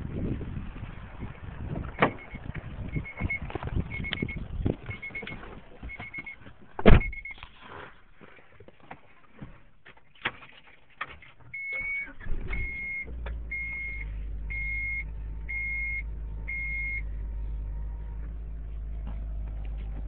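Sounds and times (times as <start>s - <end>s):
car engine starting and idling: 0.0s - 7.6s, 10.3s - 20.0s
dashboard warning beeper: 2.0s - 7.4s, 11.5s - 17.1s.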